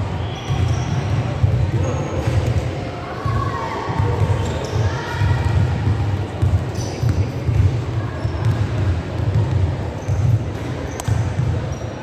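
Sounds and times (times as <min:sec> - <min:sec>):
shoes squeaking on court: 0:00.2 - 0:02.5, 0:04.2 - 0:05.6, 0:06.4 - 0:12.0
basketball bouncing: 0:00.5 - 0:02.4, 0:05.4 - 0:11.6.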